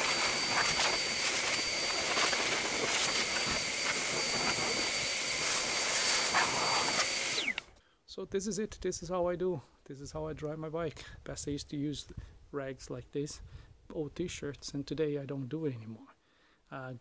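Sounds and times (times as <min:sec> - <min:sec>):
air blower rushing hiss: 0:00.0 - 0:07.7
high-pitched motor whine: 0:00.0 - 0:07.7.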